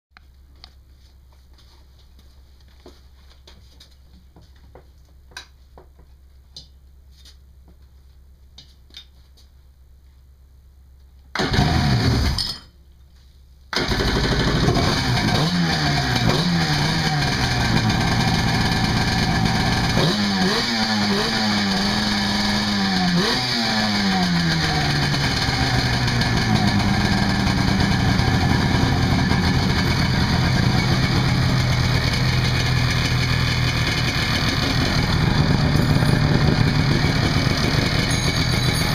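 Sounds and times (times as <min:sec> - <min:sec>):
engine starting and revving: 0:11.4 - 0:12.4, 0:13.7 - 0:38.9.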